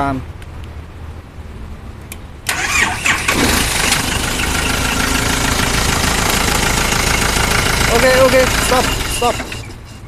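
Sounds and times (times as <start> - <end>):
diesel engine cranking and idling: 2.4 - 10.0.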